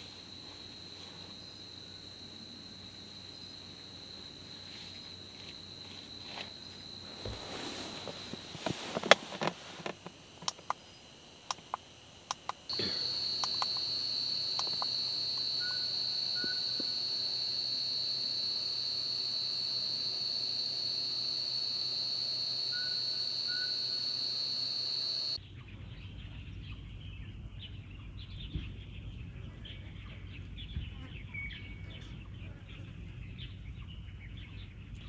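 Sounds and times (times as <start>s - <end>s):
insects trilling: 0.0s - 25.4s
sharp clicks and knocks: 8.6s - 10.8s, 11.5s - 12.7s.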